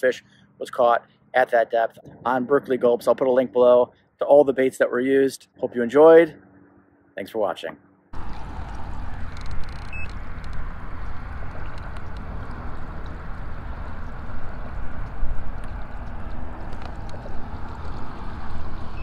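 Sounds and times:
low rumble: 8.1 - 19.0
water gurgling along kayak hull: 8.2 - 19.0.

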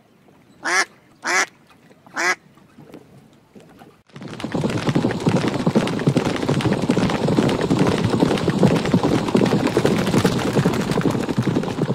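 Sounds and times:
horses galloping hoofbeats: 4.1 - 11.9.

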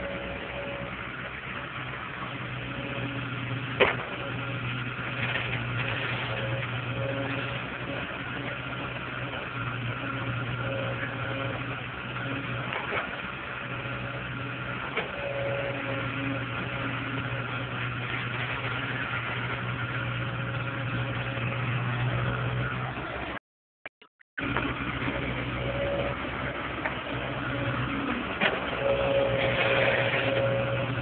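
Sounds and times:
excavator diesel engine: 0.0 - 23.4, 24.0 - 31.0
higher engine tone: 24.4 - 31.0.

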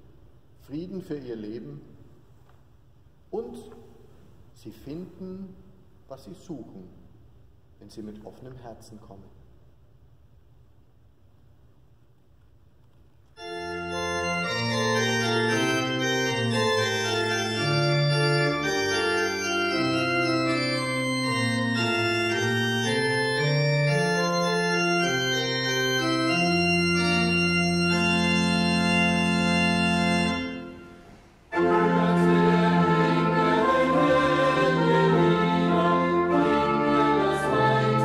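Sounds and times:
pipe organ playing chords: 13.4 - 38.0.

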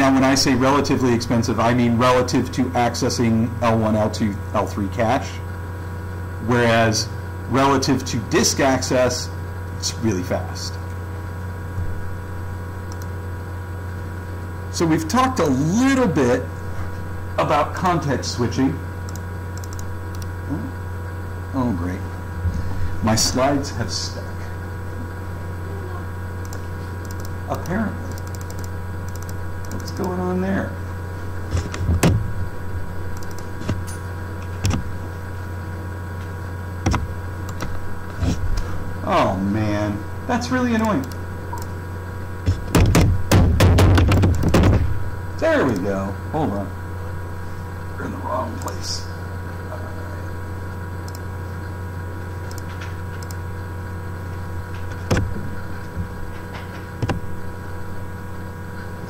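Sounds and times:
low electrical hum: 0.0 - 59.0
clicks: 12.8 - 13.2, 19.1 - 20.4, 26.4 - 30.2, 33.1 - 34.8, 36.8 - 37.8, 40.8 - 41.8, 50.7 - 51.8, 52.4 - 53.4
laptop keys clicking: 19.1 - 20.3, 26.4 - 30.2, 33.2 - 33.5.

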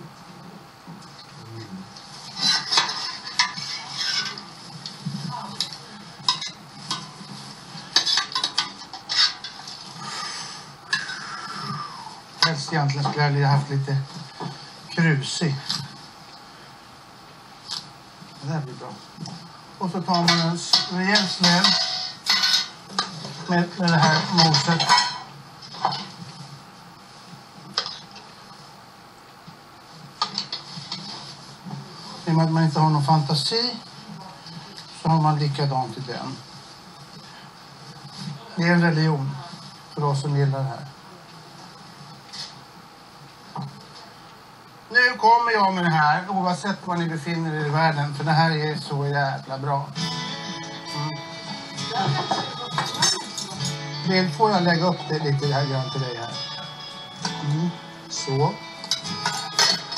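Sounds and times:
metal utensils clinking on pot: 20.2 - 22.8, 58.9 - 59.9.

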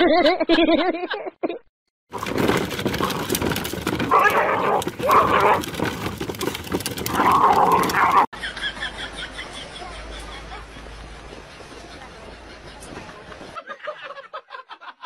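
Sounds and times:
crackling background: 2.1 - 8.3
dog growling: 2.9 - 8.3.

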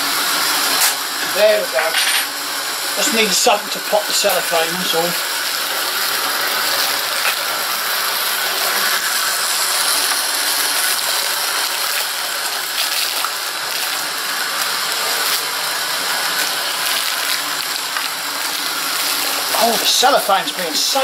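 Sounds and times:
plastic packet crinkling: 9.9 - 20.6.

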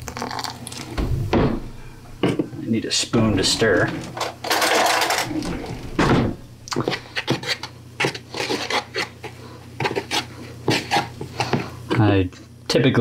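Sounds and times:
spoon scraping plastic bowl: 6.7 - 11.6.

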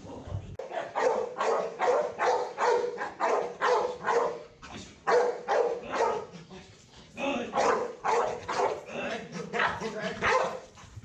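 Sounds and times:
dog barking: 0.6 - 6.4, 7.5 - 8.9, 9.5 - 10.7.

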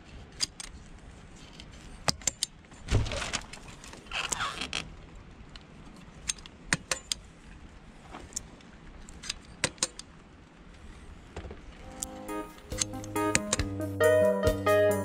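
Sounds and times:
caulking gun clicks: 12.0 - 13.7.

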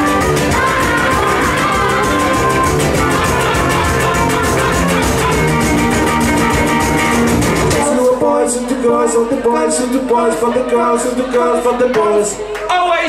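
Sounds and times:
live rock band playing: 0.0 - 8.1.

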